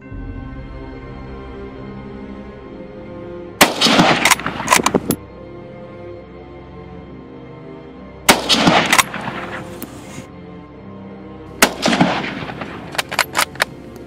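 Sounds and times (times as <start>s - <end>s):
background music: 0.0s - 14.0s
rifle shots with rolling echo: 3.6s - 5.2s, 8.3s - 9.8s, 11.6s - 14.0s.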